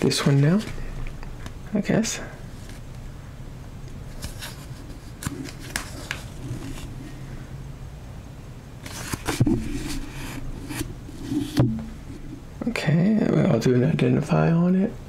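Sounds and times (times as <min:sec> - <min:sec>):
phone and paper handling: 0:04.1 - 0:06.9, 0:08.8 - 0:11.6.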